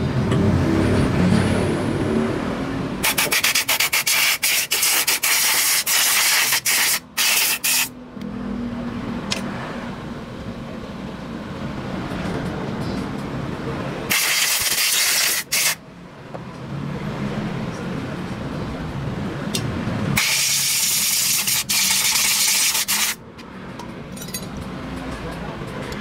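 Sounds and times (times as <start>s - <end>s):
compressed air blow gun hissing: 3.0s - 7.9s, 14.1s - 15.8s, 20.2s - 23.2s
metal parts handling: 24.1s - 24.7s.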